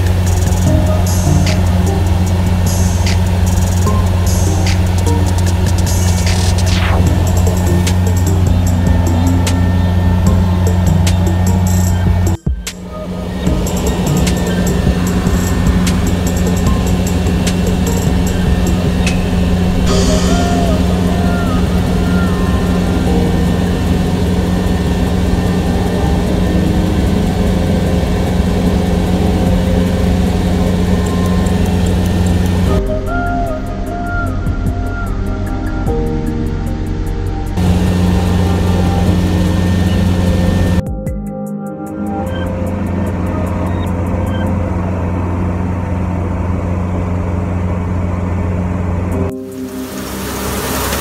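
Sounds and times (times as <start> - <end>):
cutting header machinery: 0.0 - 33.5, 37.5 - 40.8
combine harvester engine drone: 0.0 - 40.9, 41.8 - 51.0.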